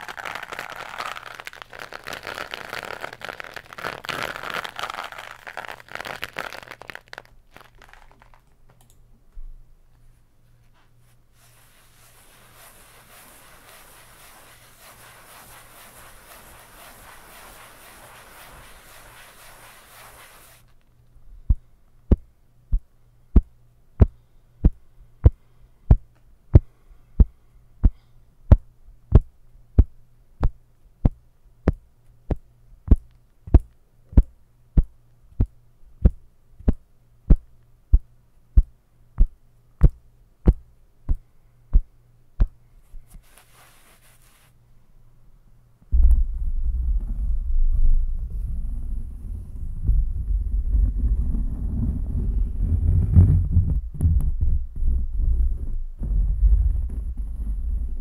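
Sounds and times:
rubbing scratchy handling noise: 0:00.0 - 0:08.5, 0:10.0 - 0:20.8, 0:42.9 - 0:44.6, 0:45.9 - 0:58.0
sharp deep thumps: 0:45.9 - 0:51.9.

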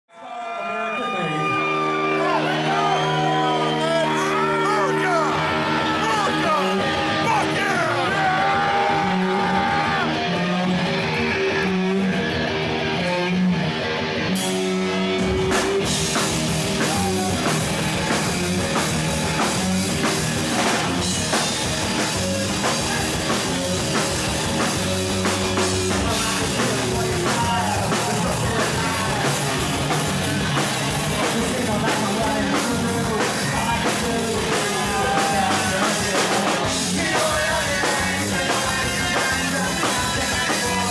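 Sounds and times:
electric guitar: 0:00.5 - 0:40.9
drum kit: 0:02.2 - 0:40.9
person singing: 0:16.6 - 0:18.4, 0:25.3 - 0:30.0, 0:31.1 - 0:40.9.

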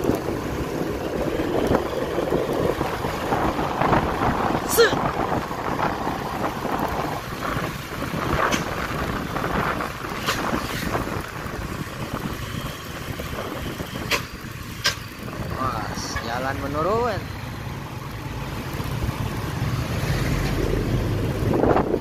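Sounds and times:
wind rush over microphone: 0:00.0 - 0:14.4, 0:20.6 - 0:22.0
road noise: 0:00.0 - 0:22.0.

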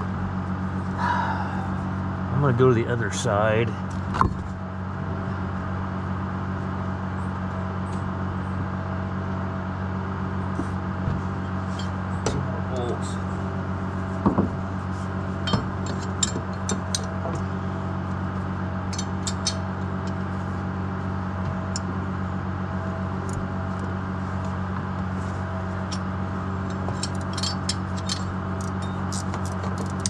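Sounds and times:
engine idling: 0:00.0 - 0:30.0
tools tapping on metal: 0:26.7 - 0:30.0.

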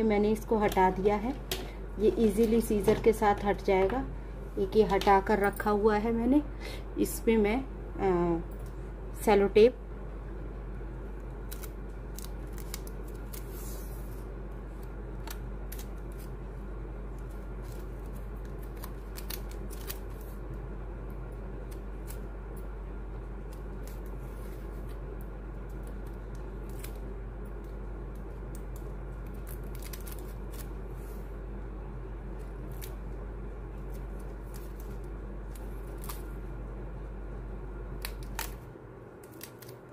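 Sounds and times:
steady low hum: 0:00.0 - 0:39.9
sticky tape handled: 0:11.4 - 0:16.4, 0:17.1 - 0:20.4, 0:25.6 - 0:31.2, 0:32.4 - 0:33.1, 0:33.8 - 0:36.4, 0:37.9 - 0:39.9.

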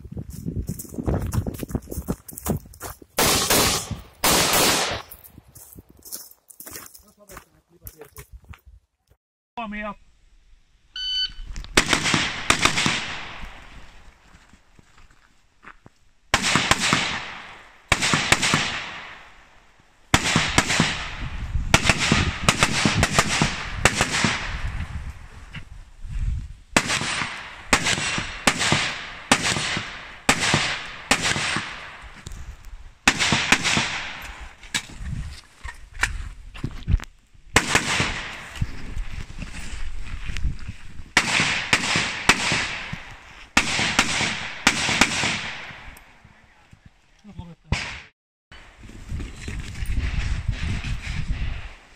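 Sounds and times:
rifle shots with ringing tail: 0:03.2 - 0:05.1, 0:11.8 - 0:13.4, 0:16.4 - 0:19.4, 0:20.1 - 0:24.6, 0:26.8 - 0:32.0, 0:33.1 - 0:34.4, 0:37.6 - 0:38.5, 0:41.2 - 0:45.9.

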